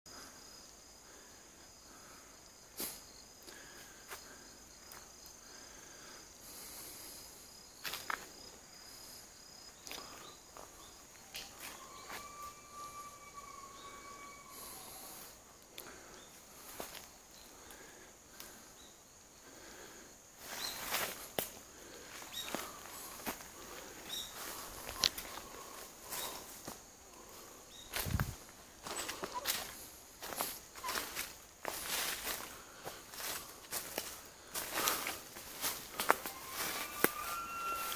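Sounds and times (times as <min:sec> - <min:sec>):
insects trilling: 0:00.1 - 0:37.9
dry leaves and twigs crunching underfoot: 0:07.8 - 0:08.4, 0:16.6 - 0:17.2, 0:20.4 - 0:37.9
steady whistle-like tone: 0:36.0 - 0:37.9.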